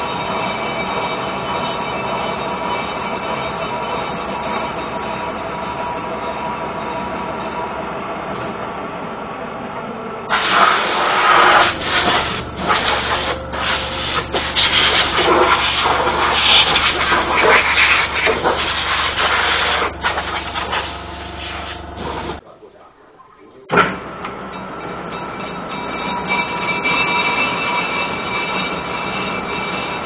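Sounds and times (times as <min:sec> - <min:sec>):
loud uneven rasping: 0:00.0 - 0:07.8, 0:10.3 - 0:22.4, 0:24.8 - 0:30.0
metal lathe humming: 0:00.0 - 0:22.4, 0:24.0 - 0:30.0.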